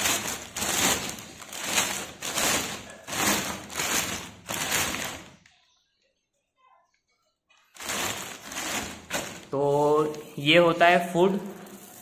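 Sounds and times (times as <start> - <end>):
plastic bag liner crinkling: 0.0 - 5.6, 7.6 - 10.6, 11.2 - 12.0.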